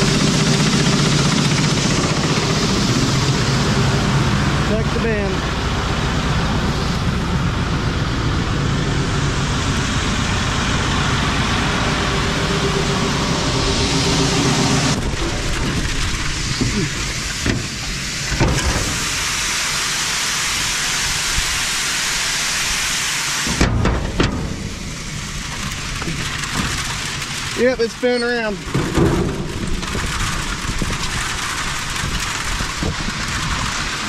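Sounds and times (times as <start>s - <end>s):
engine humming: 0.0s - 34.0s
beans pouring into grain bin: 9.2s - 34.0s.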